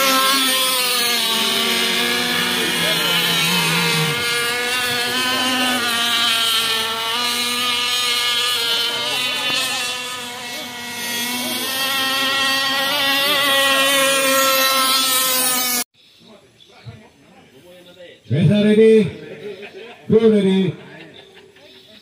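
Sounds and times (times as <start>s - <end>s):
rc speedboat engines whining: 0.0s - 15.9s.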